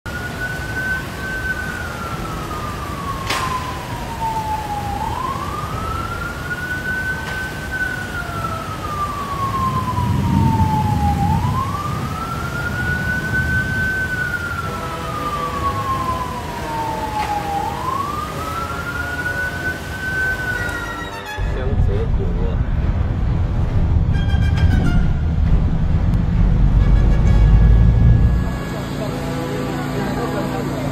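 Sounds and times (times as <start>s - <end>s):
siren wailing: 0.1s - 22.0s, 23.5s - 30.9s
low rumbling: 1.1s - 17.0s, 21.4s - 30.1s.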